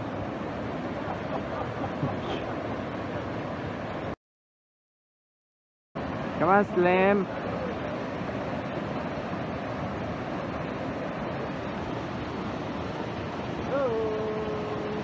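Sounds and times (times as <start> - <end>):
waterfall rushing: 6.0 - 15.0.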